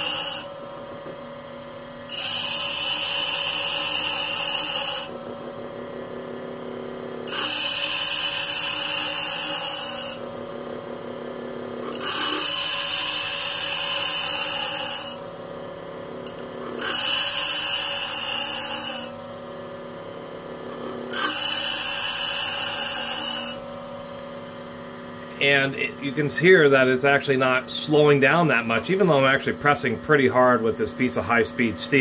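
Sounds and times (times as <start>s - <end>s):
bench grinder grinding drill bit: 0.0s - 0.6s, 2.1s - 5.2s, 7.3s - 10.2s, 11.8s - 15.2s, 16.2s - 19.2s, 20.8s - 23.7s
grinder motor running quietly: 0.0s - 32.0s.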